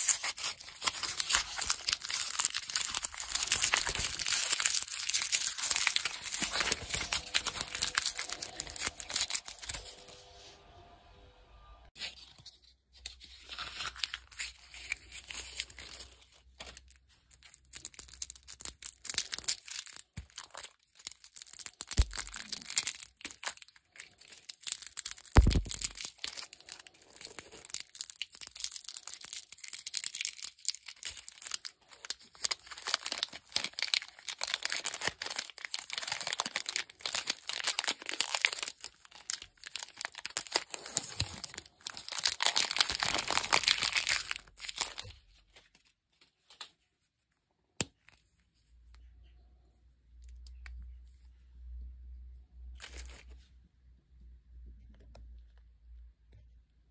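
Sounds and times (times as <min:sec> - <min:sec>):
candy wrappers crinkling: 0:00.0 - 0:10.2, 0:13.2 - 0:46.7, 0:52.7 - 0:53.4.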